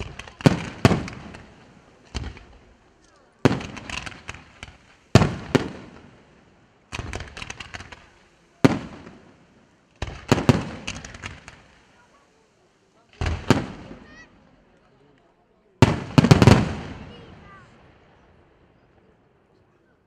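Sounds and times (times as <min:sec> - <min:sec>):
firework shells bursting: 0:00.0 - 0:12.0, 0:15.8 - 0:17.3.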